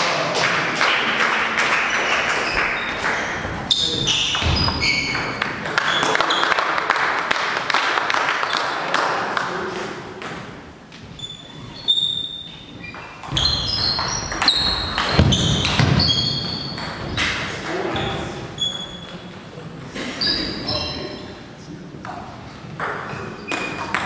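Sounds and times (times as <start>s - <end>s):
shoes squeaking: 2.1s - 6.5s, 10.9s - 21.3s, 22.5s - 24.0s.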